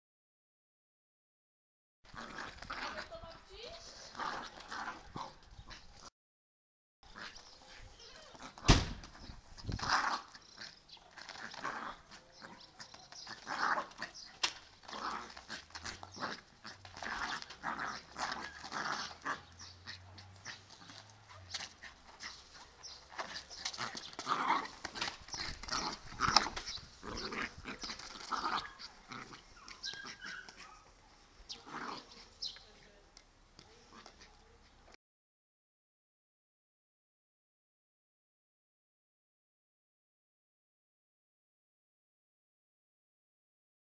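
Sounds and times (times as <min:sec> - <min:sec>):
sharp knock: 0:08.7 - 0:09.0
small dog barking: 0:29.6 - 0:31.0.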